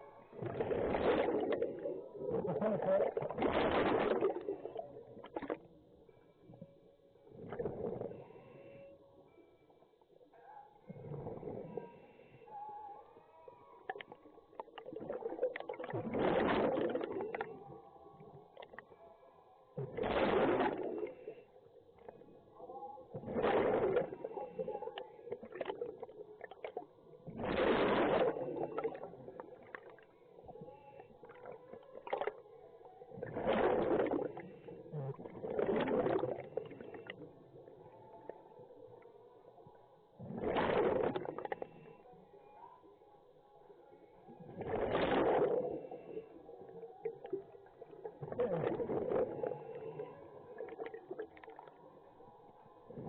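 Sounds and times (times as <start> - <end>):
faint bubbly clicks and gurgles: 0.0 - 53.0
diver's exhaled bubbles rushing: 0.4 - 5.6, 14.8 - 17.5, 19.8 - 21.2, 23.2 - 24.7, 25.3 - 29.7, 33.2 - 37.0, 40.2 - 41.6, 44.4 - 46.0, 48.1 - 49.7.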